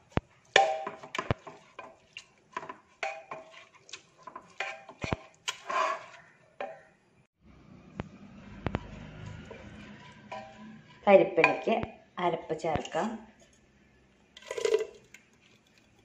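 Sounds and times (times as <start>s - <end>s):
ladle scraping and knocking pot: 0.1s - 6.8s, 8.6s - 11.9s, 14.4s - 16.0s.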